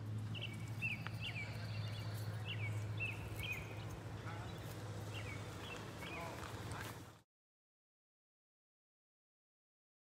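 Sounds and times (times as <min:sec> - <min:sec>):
bird chirping: 0:00.3 - 0:06.5.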